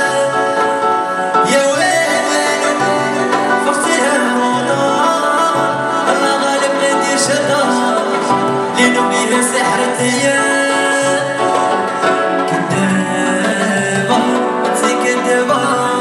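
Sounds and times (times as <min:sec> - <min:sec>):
keyboard backing with bass line: 0:00.0 - 0:16.0
man singing: 0:00.0 - 0:16.0.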